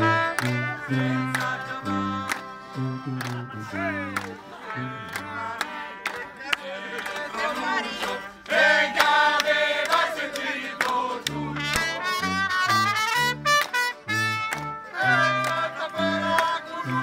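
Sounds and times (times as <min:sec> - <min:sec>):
sousaphone bass notes: 0:00.0 - 0:05.3
person singing: 0:00.0 - 0:06.0, 0:14.9 - 0:17.0
trumpet: 0:00.0 - 0:08.9, 0:11.2 - 0:17.0
acoustic guitar: 0:00.0 - 0:09.0, 0:10.7 - 0:17.0.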